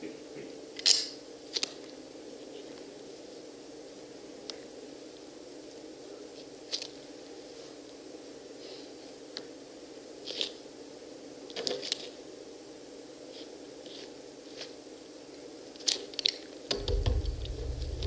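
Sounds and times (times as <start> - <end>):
steady hum: 16.6 - 18.0
low rumble: 16.7 - 18.0.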